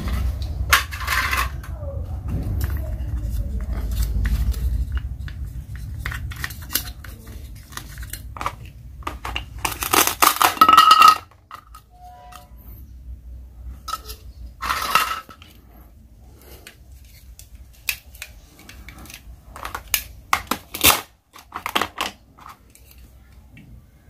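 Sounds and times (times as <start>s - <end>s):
plastic toys clicking and tapping: 0.0s - 11.9s, 16.5s - 23.7s.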